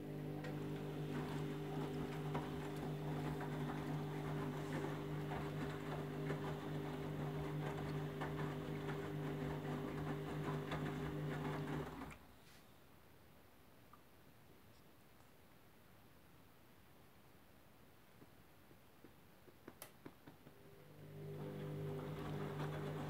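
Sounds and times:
washing machine motor hum: 0.0s - 12.2s, 20.3s - 23.0s
water sloshing in washing machine: 0.0s - 12.2s, 20.6s - 23.0s.

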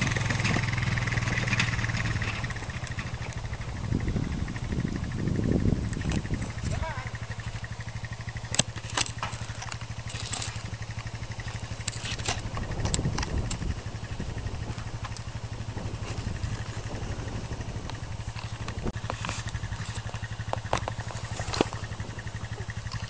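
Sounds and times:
atv engine idling: 0.0s - 23.0s
sharp clicks: 7.3s - 13.8s.

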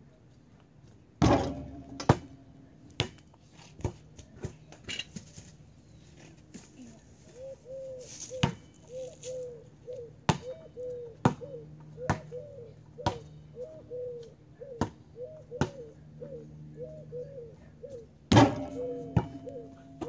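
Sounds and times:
ball bouncing on pavement: 1.2s - 5.5s, 8.4s - 8.6s, 10.3s - 10.6s, 11.2s - 12.4s, 13.0s - 13.4s, 14.8s - 15.0s, 15.6s - 15.8s, 18.3s - 20.0s
pigeons cooing: 7.3s - 20.0s.

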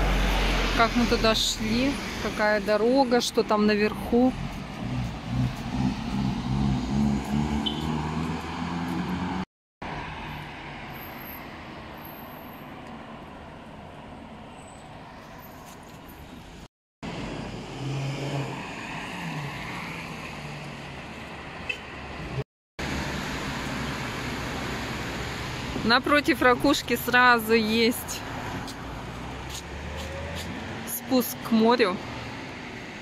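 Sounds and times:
vehicle passing: 0.0s - 10.9s, 17.1s - 33.0s
traffic hum: 0.0s - 33.0s.

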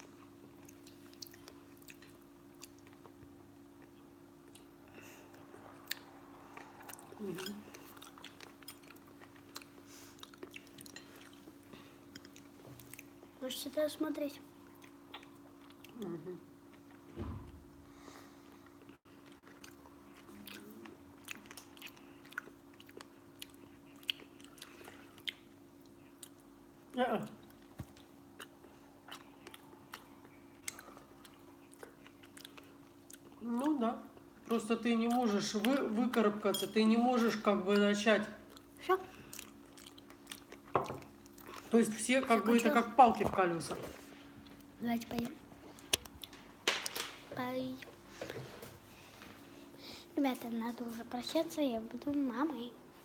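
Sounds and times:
chewing with mouth clicks: 0.0s - 13.3s, 14.6s - 17.0s, 18.6s - 26.5s, 27.4s - 34.3s, 38.5s - 41.7s
steady low hum: 0.0s - 53.0s.

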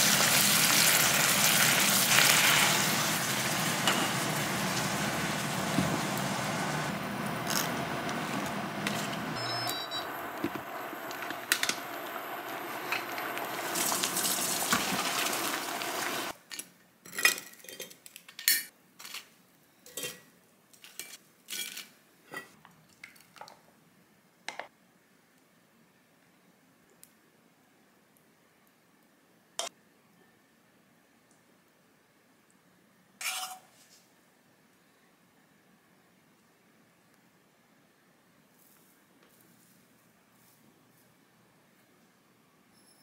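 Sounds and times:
water boiling: 0.0s - 16.4s.

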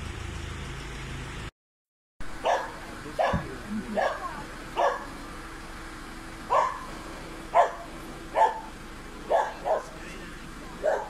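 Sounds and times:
small dog barking: 2.4s - 5.2s, 6.5s - 6.9s, 7.5s - 8.7s, 9.3s - 10.0s, 10.8s - 11.0s.

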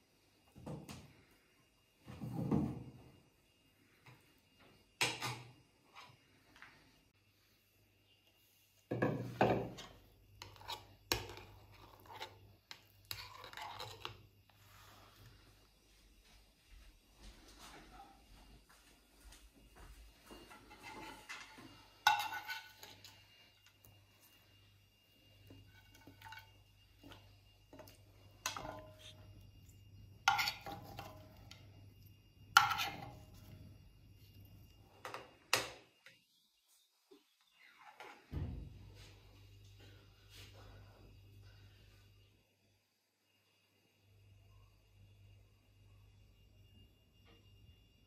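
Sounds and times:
spoon scraping thick porridge: 9.8s - 15.3s, 20.5s - 23.4s, 25.6s - 31.6s
faint scrapes and ticks: 10.4s - 16.4s, 20.3s - 24.6s
metal spoon clinking on cookware: 22.0s - 23.2s, 32.6s - 33.2s.

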